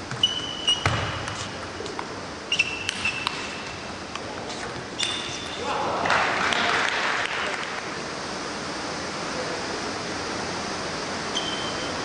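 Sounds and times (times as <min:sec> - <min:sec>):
background hiss in sports hall: 0:00.0 - 0:12.0
short high squeak: 0:00.2 - 0:00.9, 0:02.5 - 0:03.6, 0:11.3 - 0:12.0.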